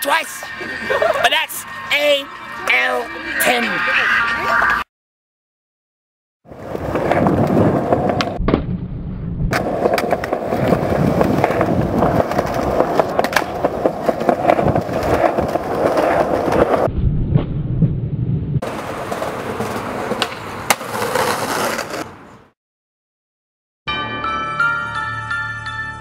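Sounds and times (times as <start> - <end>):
skateboard wheels rolling: 6.5 - 8.6, 9.5 - 16.9, 18.6 - 22.4
skateboard clacking on ground: 9.6 - 16.9, 18.6 - 22.1.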